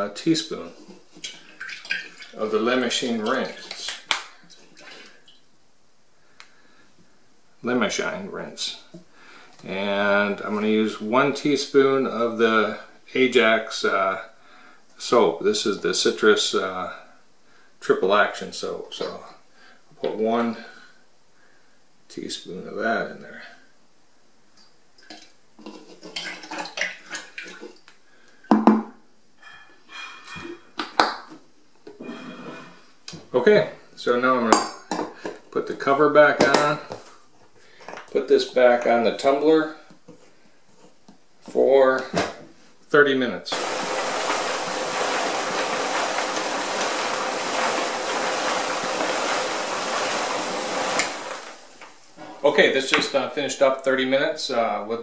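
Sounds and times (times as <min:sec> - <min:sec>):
rotary tumbler rattling hiss: 0:43.5 - 0:52.2
water sounds: 0:43.5 - 0:52.2.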